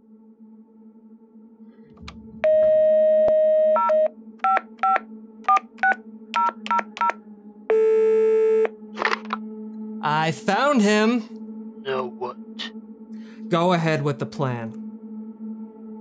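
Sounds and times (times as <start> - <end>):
telephone dial tone: 3.2 - 7.2.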